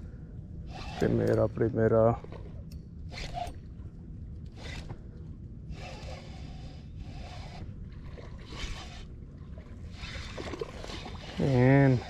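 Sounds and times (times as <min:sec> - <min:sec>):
fishing reel whirring: 0:00.7 - 0:01.4, 0:04.5 - 0:05.0, 0:05.7 - 0:07.8, 0:08.4 - 0:09.1, 0:09.9 - 0:12.0.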